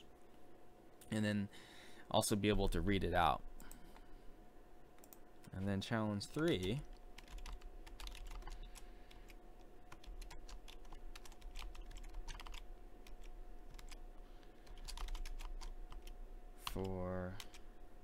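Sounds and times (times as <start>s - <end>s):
keyboard typing clicks: 6.4s - 14.0s, 14.6s - 17.6s.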